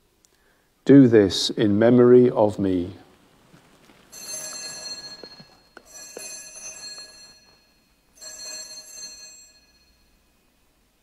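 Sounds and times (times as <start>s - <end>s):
altar bells ringing: 4.1s - 10.7s.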